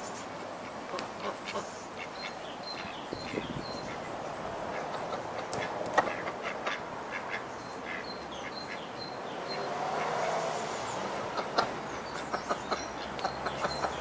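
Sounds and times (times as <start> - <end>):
ducks quacking: 0.4 - 9.1, 11.2 - 14.0.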